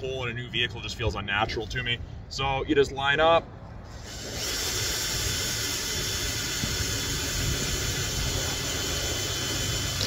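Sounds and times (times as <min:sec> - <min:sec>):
cordless drill boring plastic: 0:03.9 - 0:10.0.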